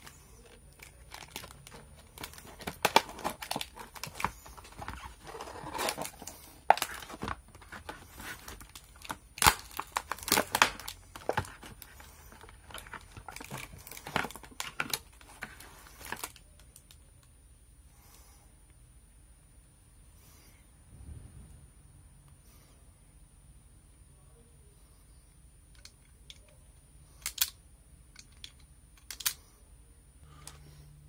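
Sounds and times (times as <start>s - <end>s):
plastic packaging crinkling: 0.0s - 16.9s
sharp plastic snaps: 27.2s - 29.4s.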